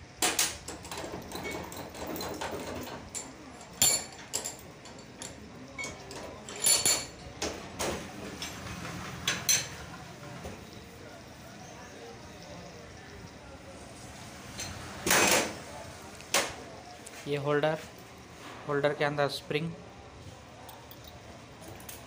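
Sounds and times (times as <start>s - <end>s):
metal tools clinking on workbench: 0.2s - 9.9s.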